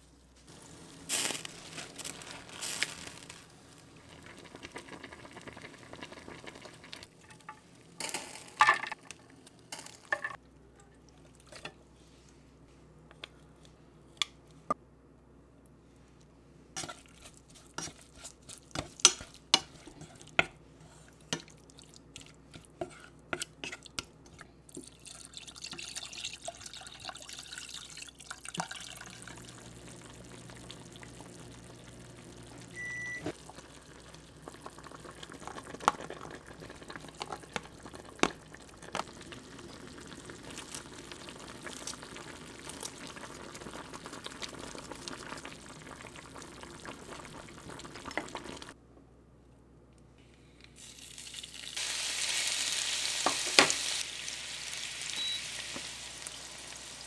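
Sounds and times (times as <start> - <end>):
soup bubbling on the boil: 0.5 - 7.1, 18.2 - 48.8.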